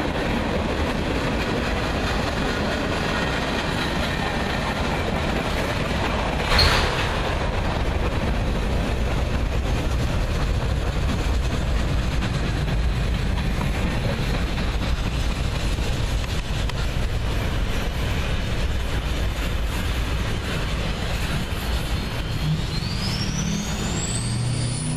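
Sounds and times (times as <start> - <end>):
train wheels rumbling on rail: 0.0 - 24.9
rising whine: 21.9 - 24.9.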